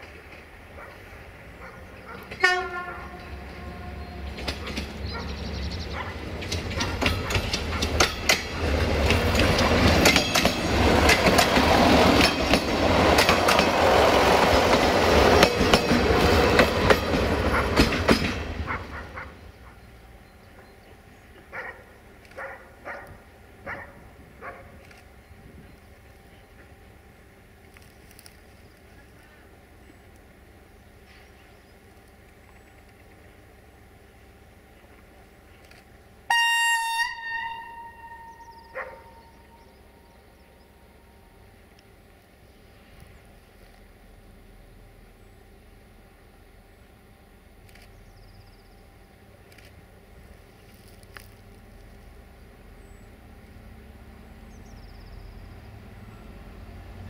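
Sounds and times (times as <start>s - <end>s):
wheels clacking over rail joints: 0.0s - 19.8s
railcar passing by: 0.0s - 57.0s
train horn blast: 2.2s - 4.7s, 36.2s - 40.1s.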